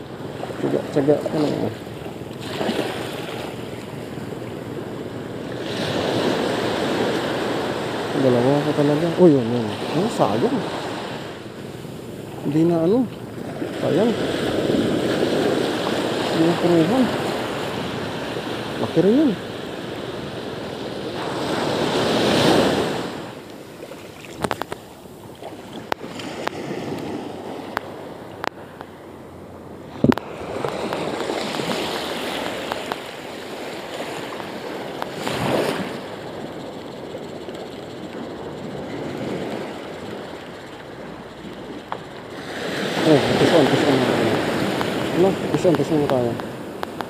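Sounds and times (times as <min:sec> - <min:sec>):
small waves breaking on shore: 0:00.0 - 0:47.0
sharp clicks: 0:24.3 - 0:24.9, 0:32.4 - 0:33.1, 0:44.3 - 0:47.0.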